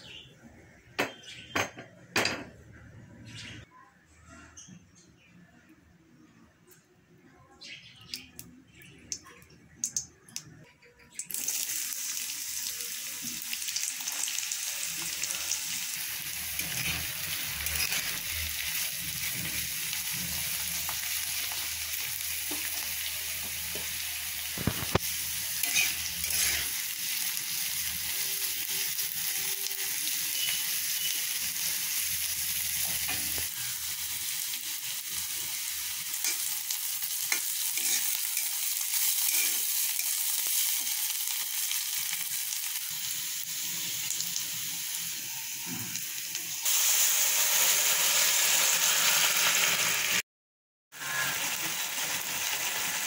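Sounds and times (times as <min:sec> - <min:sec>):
onions sizzling in hot oil: 0:11.2 - 0:50.2, 0:50.9 - 0:53.0
metal spatula scraping pan: 0:16.5 - 0:18.3, 0:25.6 - 0:26.8, 0:37.3 - 0:38.6, 0:39.2 - 0:40.2.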